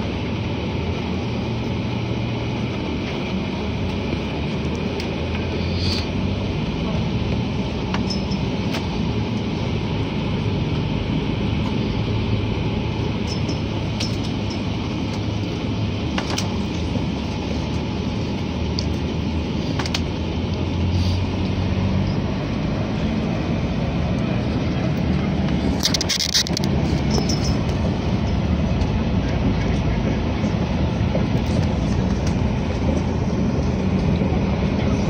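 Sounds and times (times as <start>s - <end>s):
vehicle engine and road noise: 0.0s - 35.0s
sharp clicks or rattles: 25.8s - 27.5s.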